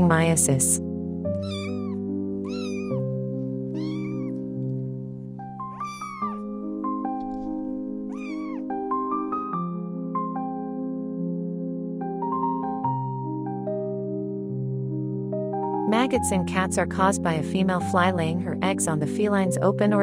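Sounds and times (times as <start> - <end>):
kitten meowing: 1.4 - 3.1, 3.7 - 4.4, 5.7 - 6.4, 8.1 - 8.7.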